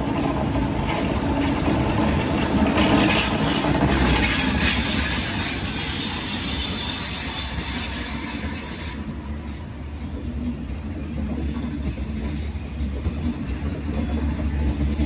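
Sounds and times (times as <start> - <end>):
train wheels rumbling on track: 0.0 - 15.0
high wheel squeal: 2.8 - 10.2.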